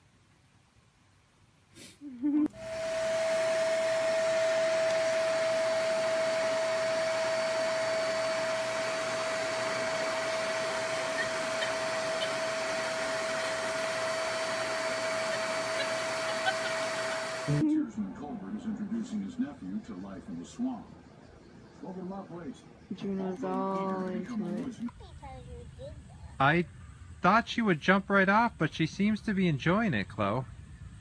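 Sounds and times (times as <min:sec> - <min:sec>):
vacuum cleaner running: 0:02.5 - 0:17.6.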